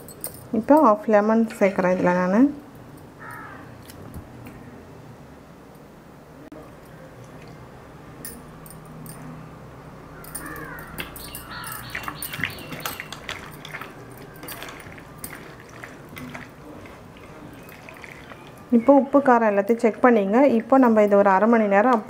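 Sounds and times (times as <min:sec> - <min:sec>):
bangles clinking: 0:00.0 - 0:00.9, 0:08.2 - 0:09.4, 0:10.2 - 0:16.5
hand squelching meat in marinade: 0:11.9 - 0:18.6.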